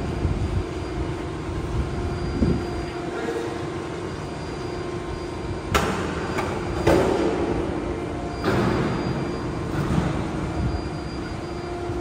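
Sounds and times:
machinery rumble and hum: 0:00.0 - 0:12.0.

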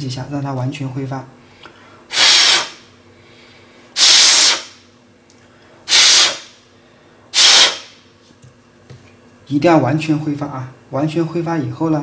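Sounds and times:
person blowing short breaths: 0:01.6 - 0:04.7, 0:05.4 - 0:07.9.

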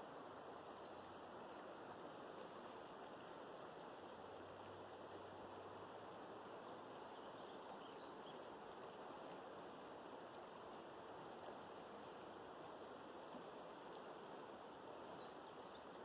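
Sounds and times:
river flowing: 0:00.0 - 0:16.0.

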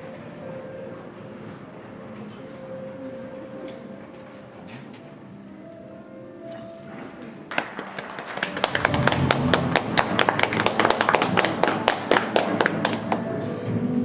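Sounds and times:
audience applauding: 0:07.5 - 0:13.6.

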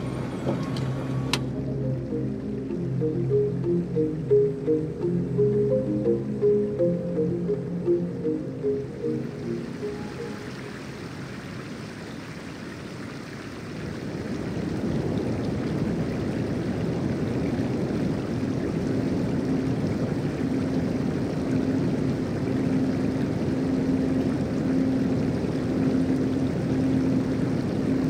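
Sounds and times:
faint steady tone: 0:00.8 - 0:11.6, 0:18.6 - 0:28.0.

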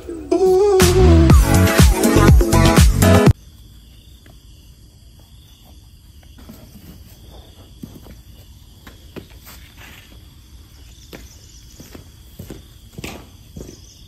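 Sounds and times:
footsteps on concrete floor: 0:03.9 - 0:14.0.

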